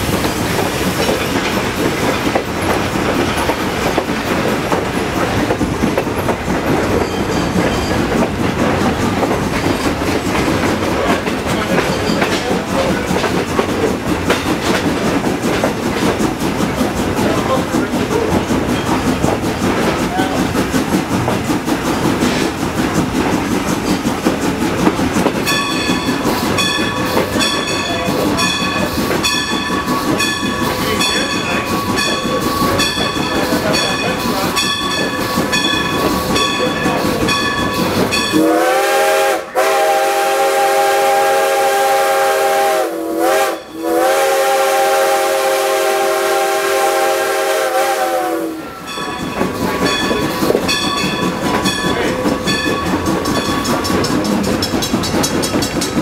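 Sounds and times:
rumble of rolling train cars: 0.0s - 56.0s
bell ringing: 25.4s - 38.4s, 48.7s - 54.4s
steam locomotive whistle: 38.3s - 48.9s.

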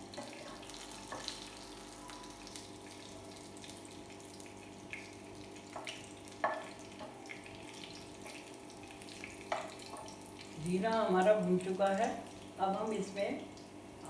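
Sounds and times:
seeds sizzling in hot oil: 0.0s - 13.7s.

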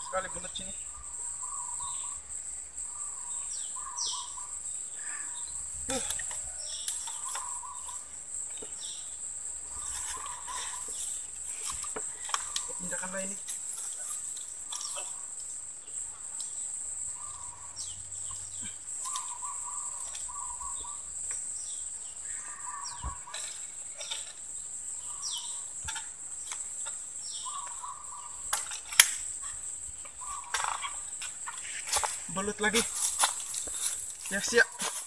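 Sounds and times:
birds calling: 0.0s - 35.0s
dry bamboo cracking: 5.9s - 8.8s, 9.8s - 15.6s, 19.0s - 20.4s, 23.2s - 24.5s, 25.8s - 35.0s.

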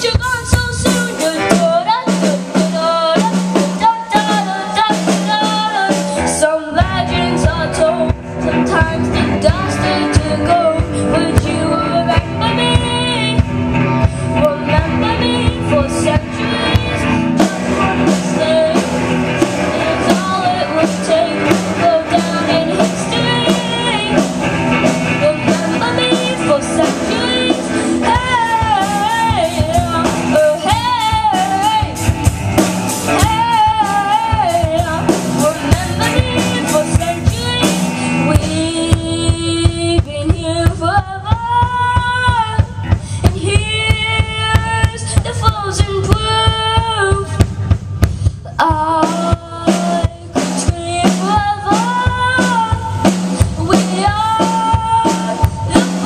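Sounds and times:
person singing: 0.0s - 32.4s, 33.0s - 56.0s
rock band playing: 0.0s - 56.0s.

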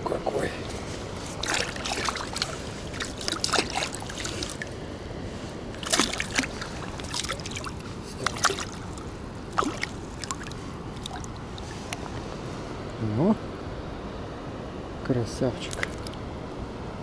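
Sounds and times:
fish splashing in water: 0.6s - 4.8s, 5.6s - 12.2s, 15.6s - 16.2s.

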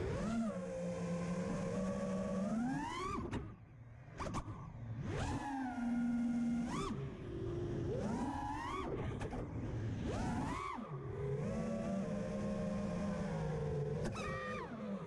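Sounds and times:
quadcopter motors whining: 4.2s - 15.0s.

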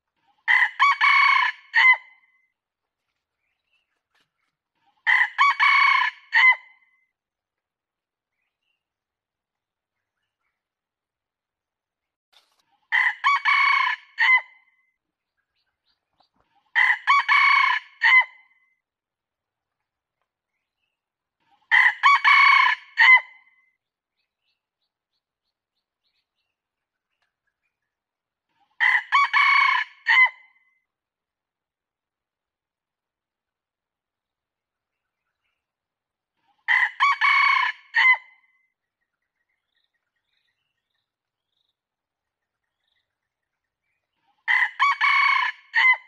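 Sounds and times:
rooster crowing: 0.5s - 2.0s, 5.1s - 6.6s, 13.0s - 14.4s, 21.7s - 23.2s, 28.8s - 30.4s, 36.7s - 38.2s, 44.5s - 46.0s.

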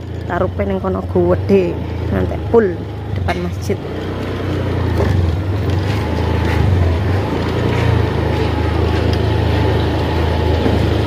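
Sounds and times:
motorbike engine drone: 0.0s - 11.0s.

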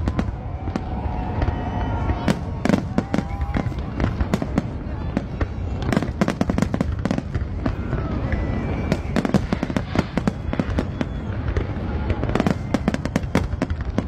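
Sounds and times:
fireworks bangs and crackles: 0.0s - 14.0s.

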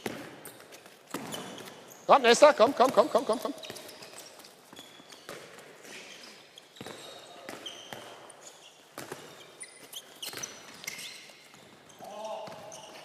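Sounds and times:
balls bouncing on wooden floor: 0.0s - 1.9s, 2.5s - 5.9s, 6.7s - 13.0s
sports shoes squeaking: 0.0s - 13.0s.

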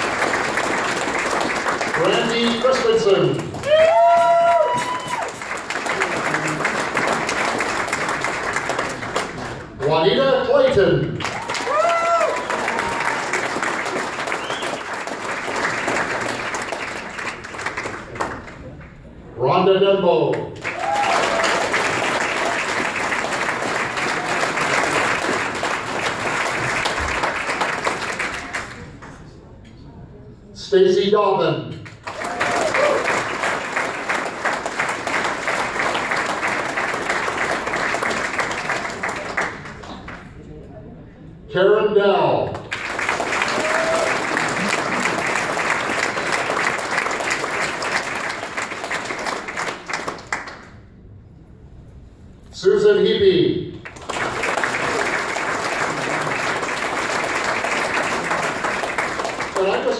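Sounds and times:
audience applauding: 0.0s - 9.9s, 10.6s - 19.0s, 20.6s - 29.1s, 32.0s - 40.3s, 42.6s - 50.8s, 53.8s - 59.9s.

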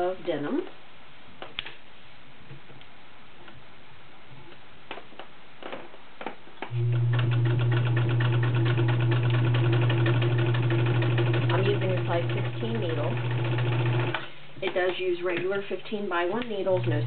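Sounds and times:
sewing machine stitching: 6.7s - 14.3s, 16.7s - 17.0s.

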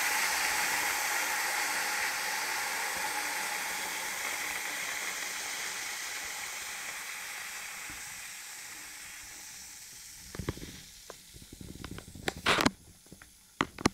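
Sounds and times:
chemical reaction fizzing and hissing: 0.0s - 13.9s
sharp clicks and crackle: 10.2s - 13.9s.

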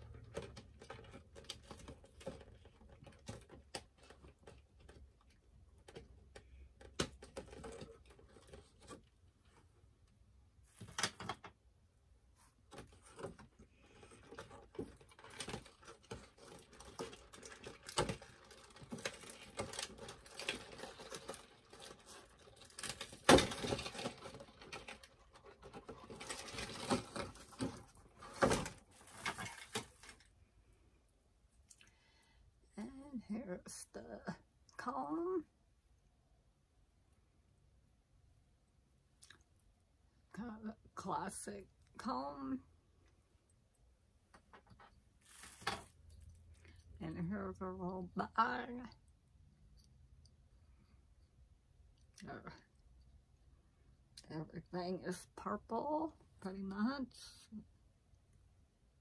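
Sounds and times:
plastic and cardboard rustling: 0.0s - 11.6s, 12.3s - 30.8s, 44.3s - 46.8s.

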